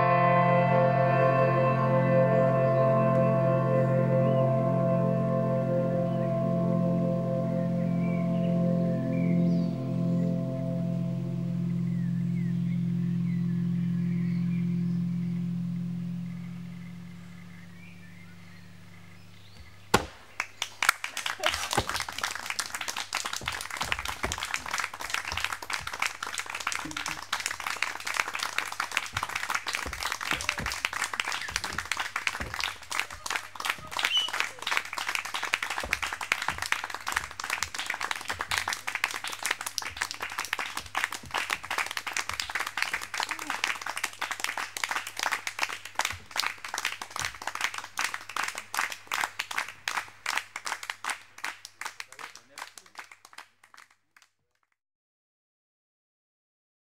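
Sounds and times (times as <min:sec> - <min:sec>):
audience applauding: 0:20.4 - 0:54.3.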